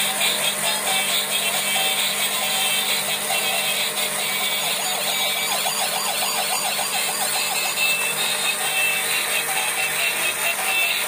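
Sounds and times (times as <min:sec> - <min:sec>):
toy whirring hiss: 0:00.0 - 0:11.0
toy siren wailing: 0:01.4 - 0:11.0.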